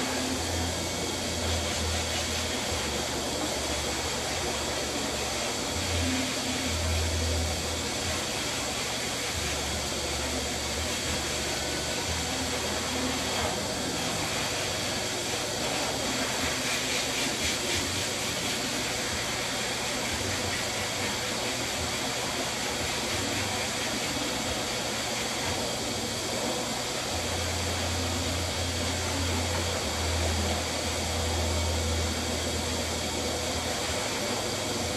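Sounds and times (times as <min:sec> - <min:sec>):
blower rushing air: 0:00.0 - 0:34.9.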